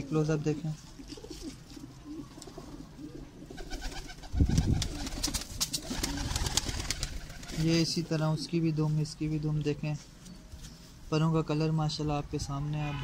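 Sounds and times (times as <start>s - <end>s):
pigeons cooing: 0.8s - 8.5s.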